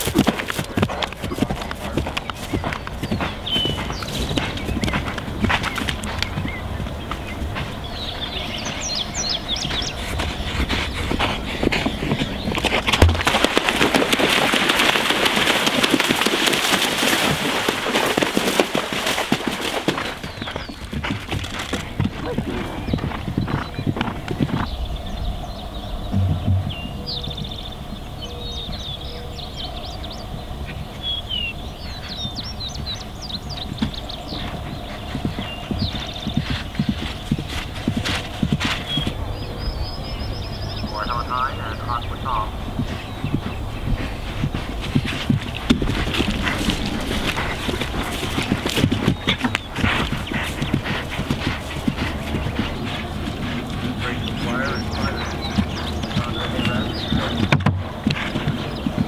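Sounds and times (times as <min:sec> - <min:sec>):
horse hooves splashing in water: 0:00.0 - 0:24.7, 0:30.6 - 0:39.4, 0:40.3 - 0:59.0
heavy thud of horse landing: 0:12.6 - 0:14.0, 0:26.1 - 0:27.0.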